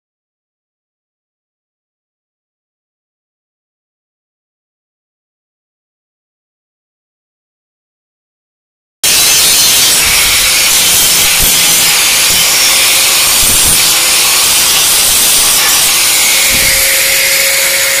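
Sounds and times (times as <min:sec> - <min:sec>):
angle grinder grinding steel: 0:09.0 - 0:18.0.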